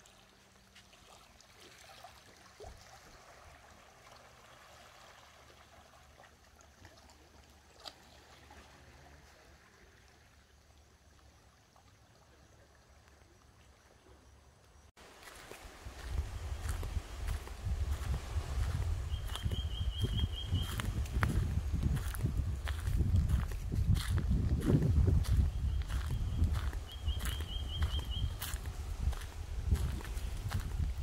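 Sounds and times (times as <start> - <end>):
faint running water: 0.0 - 18.8.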